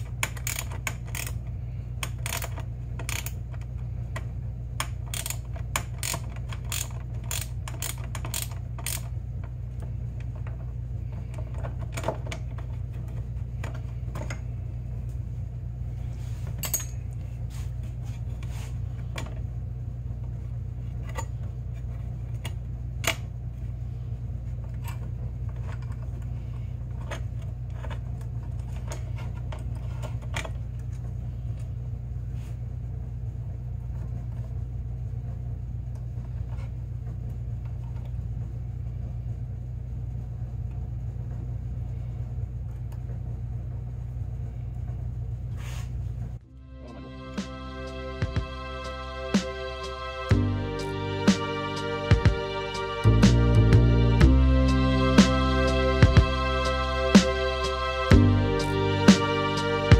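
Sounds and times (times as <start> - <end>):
ratchet wrench clicking: 0.0 - 1.4, 2.0 - 3.4, 4.8 - 9.1
low hum: 0.0 - 59.9.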